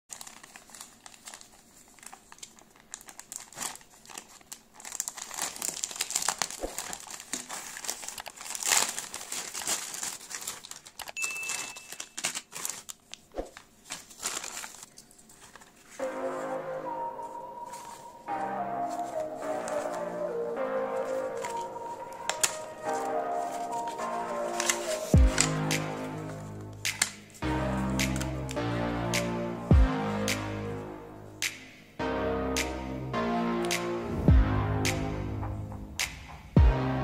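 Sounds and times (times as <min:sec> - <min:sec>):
plastic bag crinkling and ripping: 0:00.1 - 0:16.0, 0:21.0 - 0:27.4
background music: 0:15.9 - 0:37.0.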